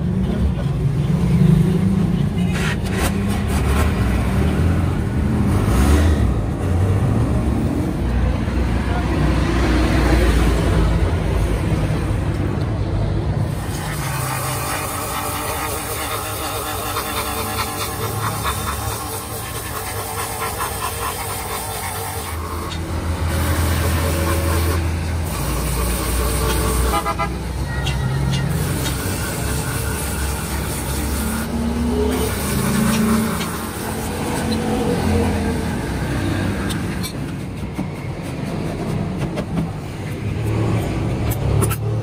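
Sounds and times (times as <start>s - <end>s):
road traffic passing: 0.0s - 42.0s
vehicle horn tooting: 26.6s - 28.5s.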